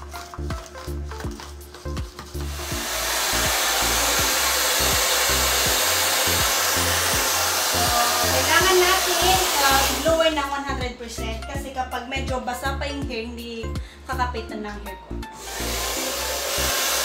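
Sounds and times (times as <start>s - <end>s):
background music with beat: 0.0s - 17.0s
hair dryer blowing: 2.2s - 10.5s, 15.4s - 17.0s.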